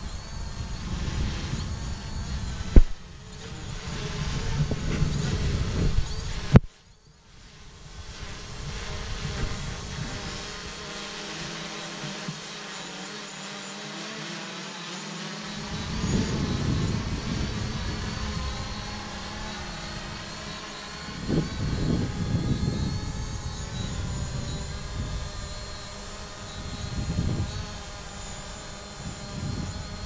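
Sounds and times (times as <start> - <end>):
wind buffeting microphone: 0.0 - 6.7, 7.9 - 10.8, 15.6 - 30.0
drone propellers whining: 0.0 - 30.0.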